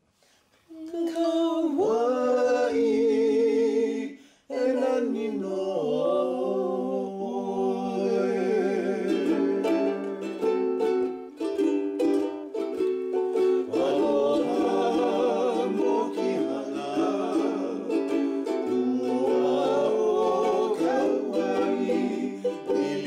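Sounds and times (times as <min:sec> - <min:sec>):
person singing with vibrato: 0:00.6 - 0:11.4, 0:12.1 - 0:23.0
plucked strings strumming: 0:09.2 - 0:23.0.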